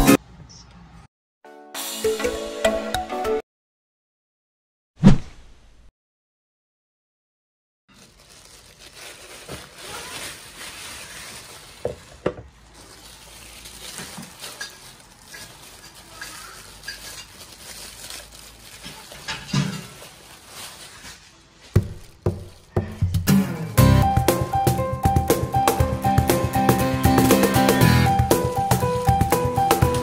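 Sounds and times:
music: 1.4 - 3.4, 22.8 - 30.0
plastic wrapping crinkling: 7.9 - 22.8, 28.1 - 30.0.

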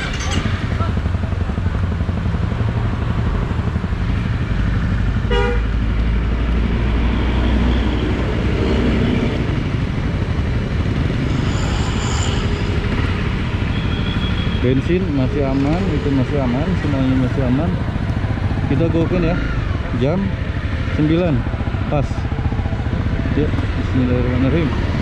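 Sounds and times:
motorcycle engine running: 0.0 - 25.0
vehicle horn toot: 5.3 - 5.7, 13.7 - 14.8.

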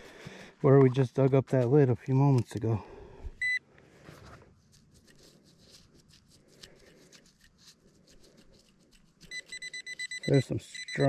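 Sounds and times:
rustling dry leaves and soil: 3.7 - 9.6
small irregular ticks: 4.7 - 11.0.

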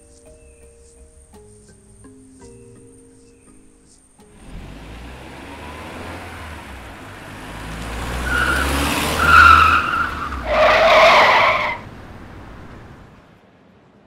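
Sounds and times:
car skidding to a stop: 4.3 - 13.1
car engine rumble: 4.3 - 14.0
tyres squealing: 4.4 - 13.1.

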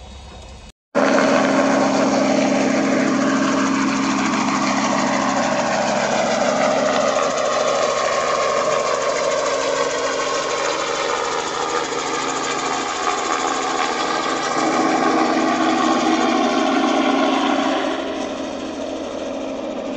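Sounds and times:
helicopter flying overhead: 1.0 - 19.9.

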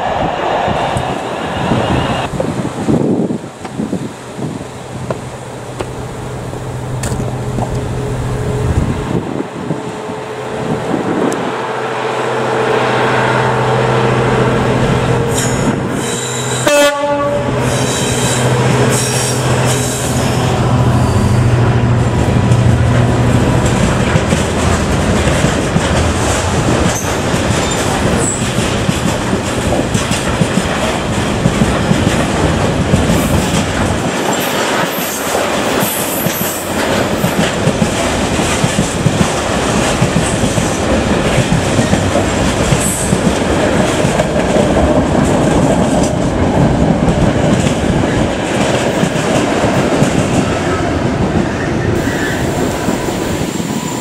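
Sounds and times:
diesel locomotive engine: 0.0 - 54.0
train horn blast: 11.6 - 22.0.

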